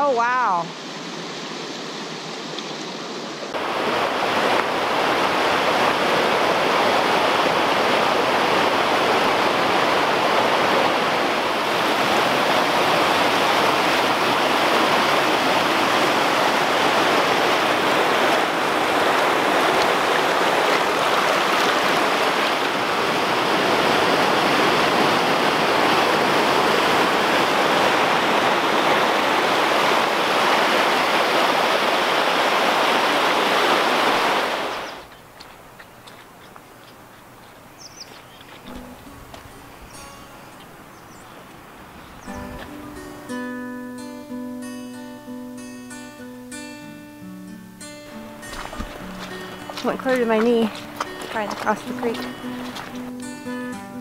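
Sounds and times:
creek rushing over rocks: 0.0s - 43.0s, 48.1s - 53.8s.

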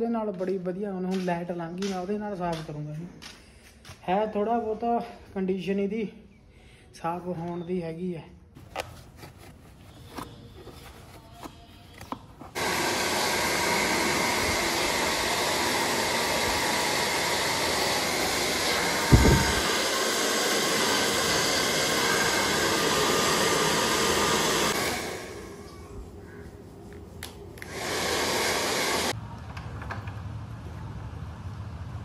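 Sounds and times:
hair dryer blowing: 12.5s - 26.0s, 27.6s - 29.2s.

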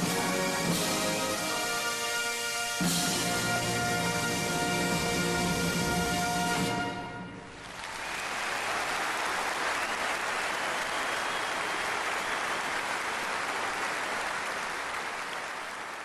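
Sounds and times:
crowd clapping: 7.5s - 16.0s.

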